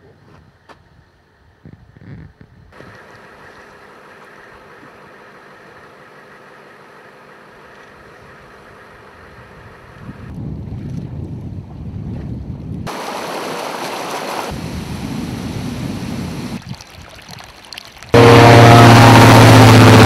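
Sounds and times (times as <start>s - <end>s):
wind on microphone: 1.6s - 3.0s, 9.3s - 12.9s, 14.5s - 16.8s
diesel engine idling: 2.9s - 10.0s, 18.2s - 20.0s.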